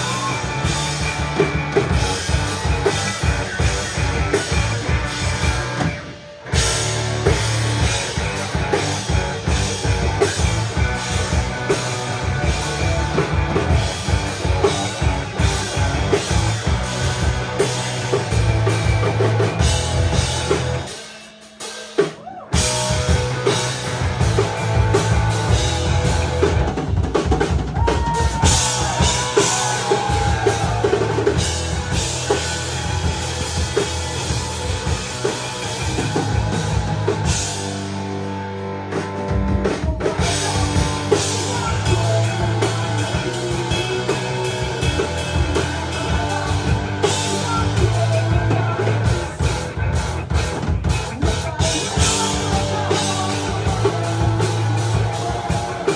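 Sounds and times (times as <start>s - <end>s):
drum kit kick and snare: 0.0s - 37.9s
electric guitar: 0.0s - 55.9s
rock band playing live: 0.0s - 55.9s.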